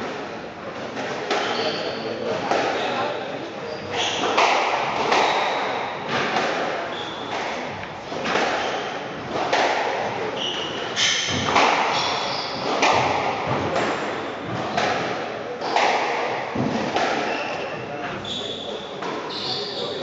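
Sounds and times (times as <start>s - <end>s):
shoes squeaking on wooden floor: 1.4s - 6.2s, 6.9s - 9.4s, 10.2s - 14.9s, 16.6s - 20.0s
squash ball echoing cracks: 4.1s - 17.4s.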